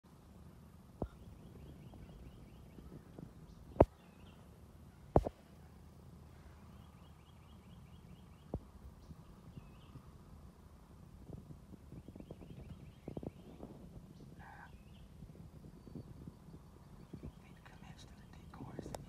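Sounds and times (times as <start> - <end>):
small bird singing: 1.0 - 5.2, 6.6 - 10.1, 11.9 - 19.0.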